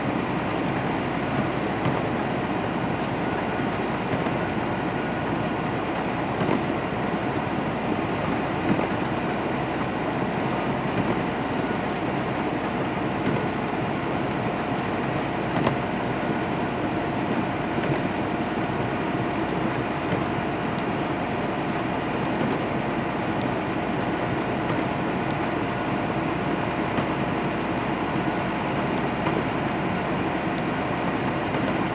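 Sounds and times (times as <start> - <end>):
faint steady whine: 0.0 - 31.9
truck engine rumble: 0.0 - 31.9
light tick: 20.1 - 20.9, 23.4 - 25.4, 28.7 - 29.4, 30.5 - 31.7.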